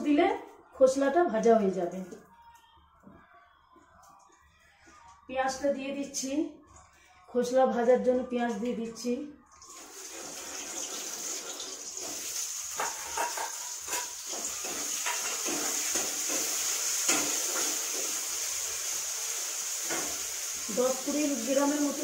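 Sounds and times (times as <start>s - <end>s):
onions sizzling in hot oil: 9.8s - 22.0s.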